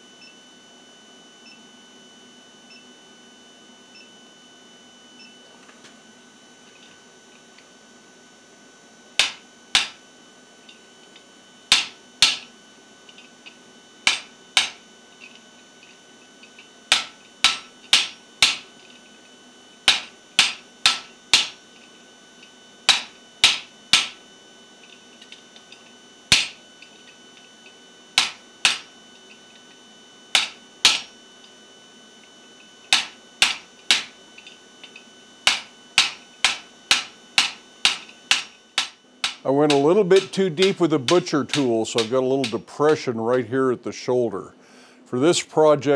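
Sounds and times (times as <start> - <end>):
hammer ringing on metal: 9.2 - 10.0, 11.7 - 12.5, 14.1 - 14.8, 16.9 - 18.7, 19.9 - 21.6, 22.9 - 24.2, 26.3 - 26.6, 28.2 - 28.9, 30.3 - 31.1, 32.9 - 34.2, 35.5 - 43.5.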